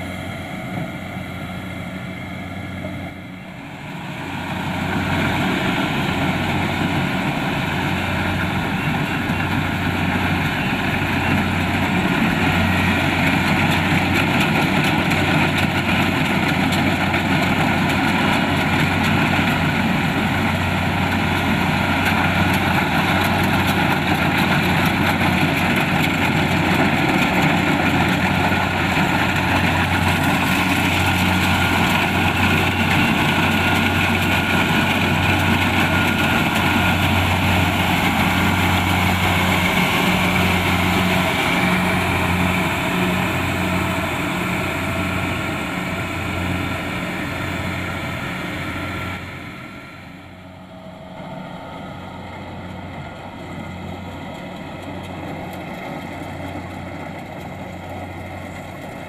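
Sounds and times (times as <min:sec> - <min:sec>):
diesel engine humming: 0:00.0 - 0:59.0
machinery clattering and whirring: 0:03.7 - 0:59.0.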